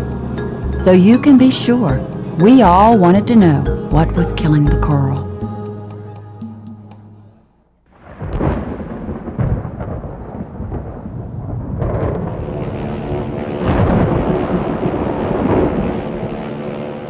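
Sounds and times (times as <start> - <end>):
steady droning hum: 0.0 - 5.5, 12.7 - 17.0
rain: 7.9 - 17.0
rumbling thunder: 7.9 - 17.0
thunder crashes: 7.9 - 17.0.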